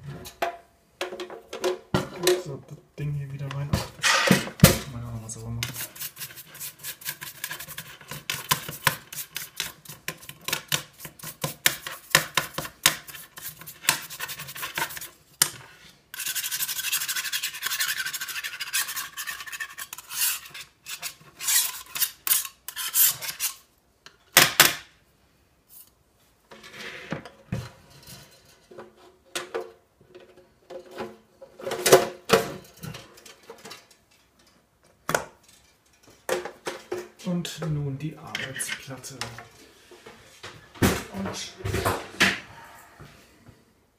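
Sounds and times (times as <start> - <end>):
hands rubbing metal toaster: 5.6 - 15.2, 16.2 - 23.6.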